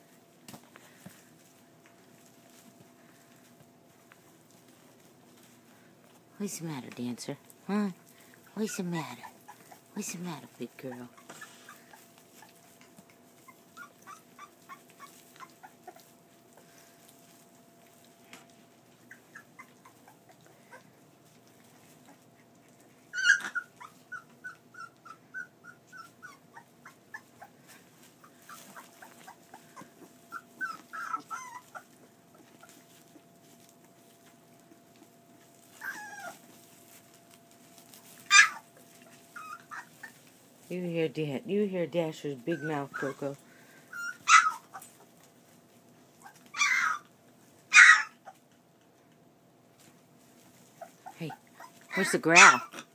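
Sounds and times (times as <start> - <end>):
puppies whimpering and yipping: 8.3 - 10.2, 10.8 - 16.9, 18.8 - 33.9, 34.6 - 40.4, 42.3 - 45.2, 46.1 - 48.5, 50.7 - 52.9
puppy yelps: 13.4 - 16.0, 19.0 - 20.8, 23.1 - 27.6, 28.2 - 32.7, 35.8 - 36.5, 38.2 - 38.7, 39.3 - 40.2, 42.5 - 45.0, 46.2 - 47.1, 47.7 - 48.4, 50.8 - 52.9.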